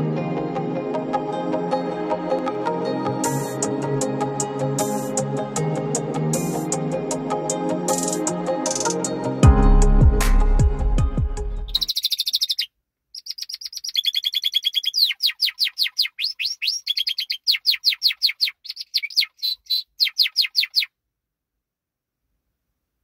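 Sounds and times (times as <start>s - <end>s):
electronic music: 0.8s - 11.7s
canary singing trills: 11.6s - 21.0s.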